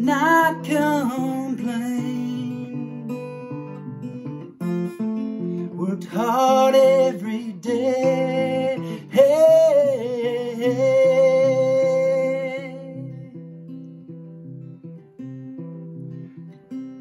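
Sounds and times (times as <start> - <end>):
man singing: 0.0 - 3.4, 5.4 - 13.4
acoustic guitar: 0.0 - 17.0.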